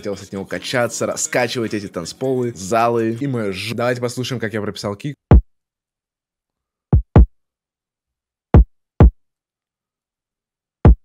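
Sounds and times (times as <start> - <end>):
electronic kick drum hits: 7.0 - 7.3.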